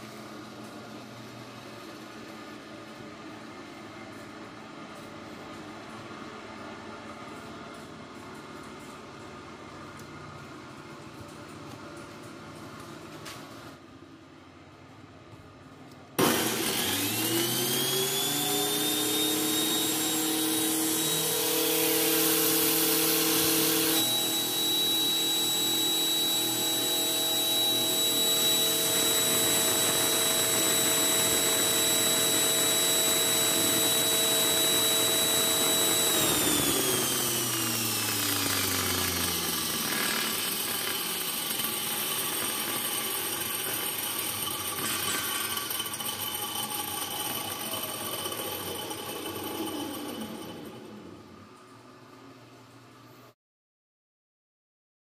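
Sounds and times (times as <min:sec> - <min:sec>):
angle grinder whining: 0:16.2 - 0:51.6.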